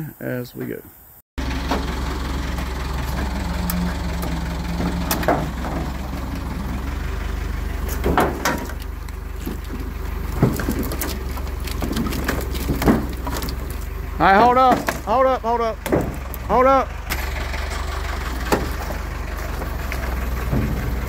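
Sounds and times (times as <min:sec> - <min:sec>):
forklift engine idling: 0:01.4 - 0:21.0
sharp knocks: 0:15.8 - 0:16.4, 0:18.4 - 0:19.0.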